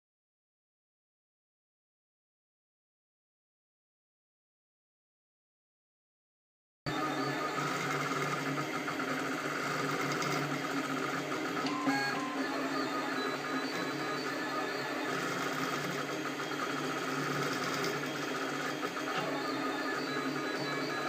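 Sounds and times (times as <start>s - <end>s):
printer stepper motors whirring: 6.9s - 21.0s.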